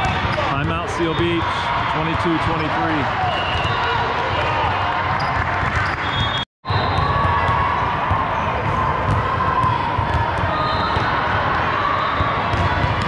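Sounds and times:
volleyball hits: 0.0 - 1.3, 6.9 - 13.0
spectators chattering and cheering: 0.0 - 13.0.

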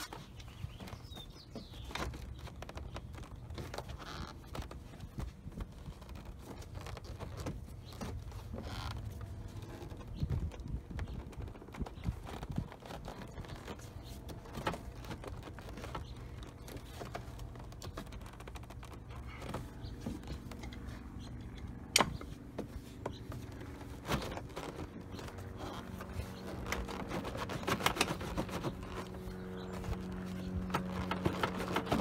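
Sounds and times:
plastic clips clicking and creaking: 23.3 - 32.0
sharp plastic crack: 23.4 - 32.0.

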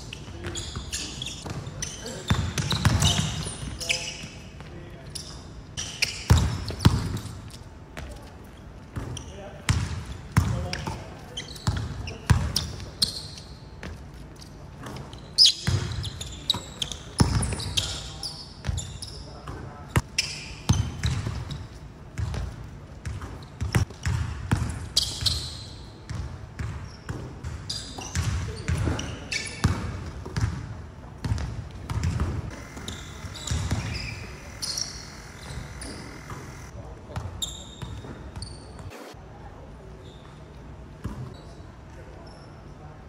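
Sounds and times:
sneakers squeaking on floor: 0.0 - 39.2, 40.0 - 42.7
basketballs bouncing on hardwood: 0.3 - 3.8, 8.9 - 10.9, 20.7 - 25.3, 26.1 - 29.0, 29.6 - 38.1
basketball bouncing on hardwood: 31.2 - 34.1.

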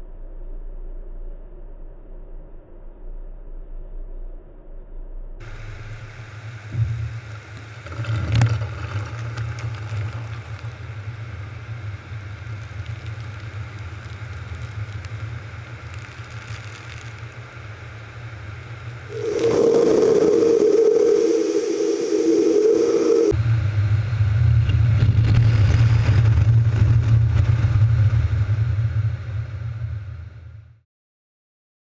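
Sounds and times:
car wash equipment humming: 5.4 - 24.4
blower rushing air: 5.4 - 29.5.

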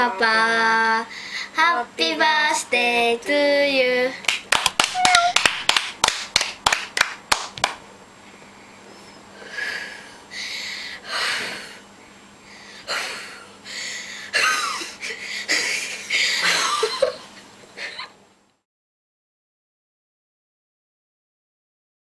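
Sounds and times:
short laughs: 14.3 - 17.2.

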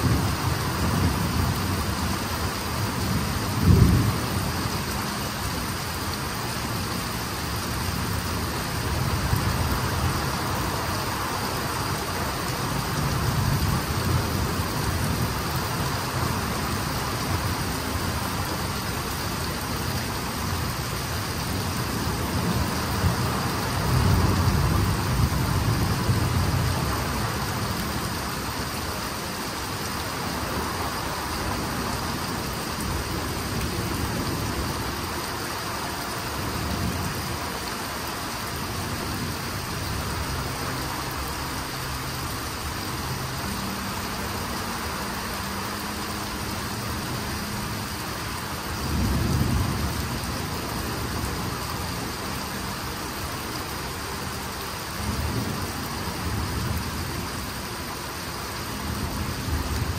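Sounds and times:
heavy rain pouring: 0.0 - 59.9
low thunder rumble: 3.0 - 5.0.

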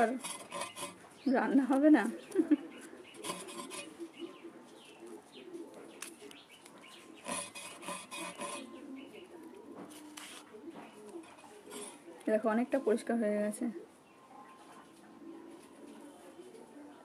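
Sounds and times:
skin scraped against a blade: 0.0 - 1.8, 2.8 - 4.2, 6.0 - 8.8.

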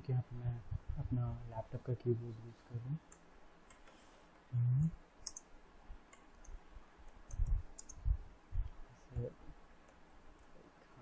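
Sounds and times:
dull low keystroke thumps: 0.5 - 1.3, 7.4 - 9.3
laptop keyboard clicking: 5.2 - 5.4, 6.1 - 8.0.

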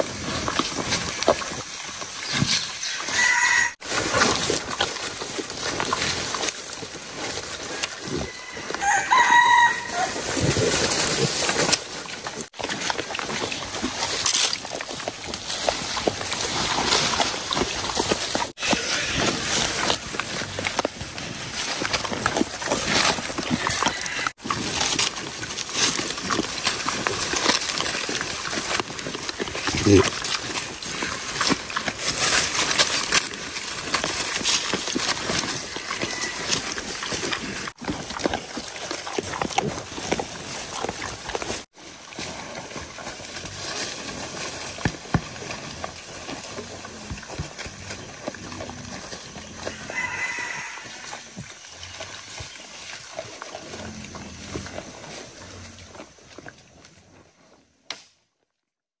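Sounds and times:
rustling of dry leaves: 0.0 - 57.8
boar grunts: 29.4 - 31.1.

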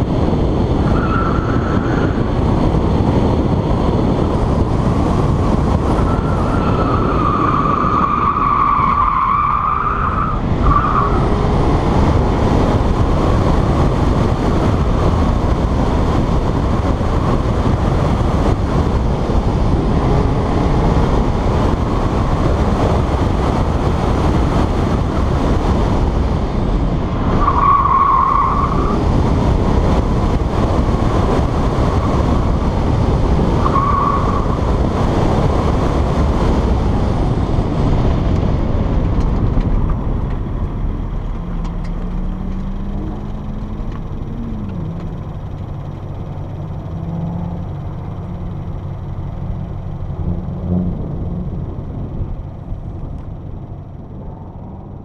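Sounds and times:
car engine at speed: 0.0 - 55.0
wind rush on camera: 0.0 - 55.0
tire squeals: 0.8 - 2.5, 5.2 - 11.7, 27.1 - 29.5, 30.4 - 35.4.

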